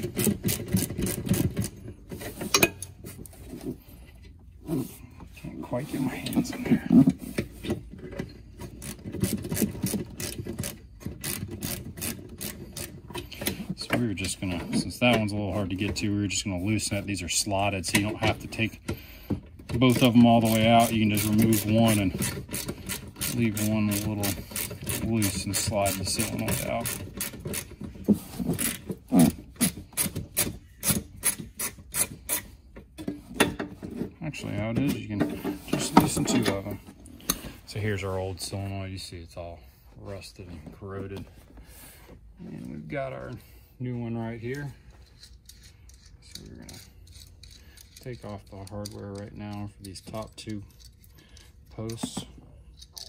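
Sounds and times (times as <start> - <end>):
ratchet wrench clicking: 20.5 - 25.0, 45.0 - 50.0.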